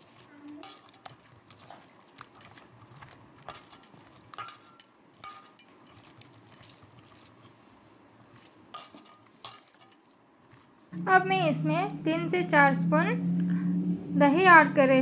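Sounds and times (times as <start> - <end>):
hands mixing fish in marinade: 0.0 - 12.4
clinks against metal bowl: 0.6 - 1.2, 3.5 - 6.0, 8.8 - 10.1.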